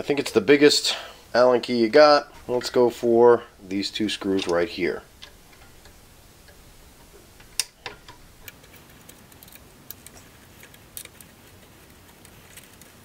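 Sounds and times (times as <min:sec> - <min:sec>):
allen key clicking on screws: 0:07.4 - 0:13.0.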